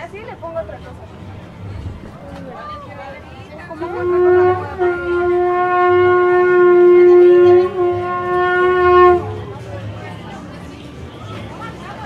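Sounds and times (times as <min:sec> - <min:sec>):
wind horn held note: 0:03.7 - 0:09.5.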